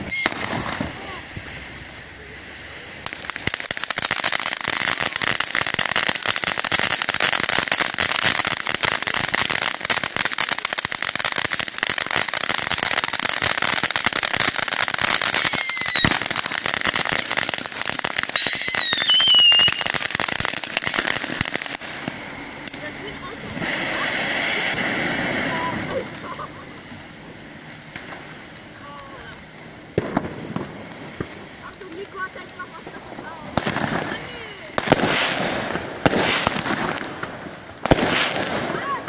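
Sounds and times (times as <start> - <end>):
firework sparks crackling: 0.0 - 39.0
falling whistles: 0.1 - 0.9, 15.3 - 16.1, 18.3 - 19.9, 20.7 - 21.2.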